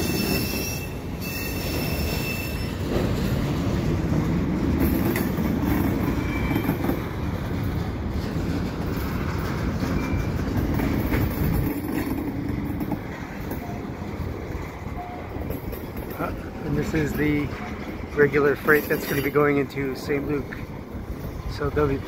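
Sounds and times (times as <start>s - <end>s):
wheel squeals: 0.0s - 3.2s, 5.1s - 7.1s, 9.0s - 12.2s, 14.9s - 20.2s
steel wheels rumbling on rail: 0.0s - 22.0s.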